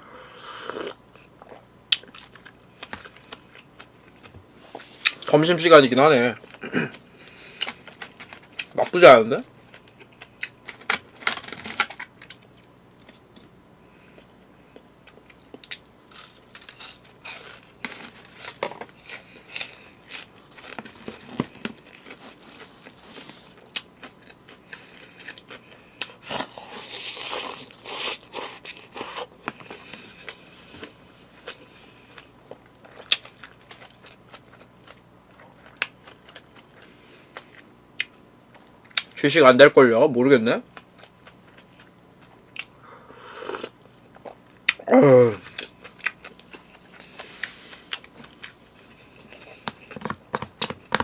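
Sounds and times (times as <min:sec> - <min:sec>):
person chewing and crunching: 0:00.6 - 0:05.3, 0:14.1 - 0:39.2, 0:40.8 - 0:51.0.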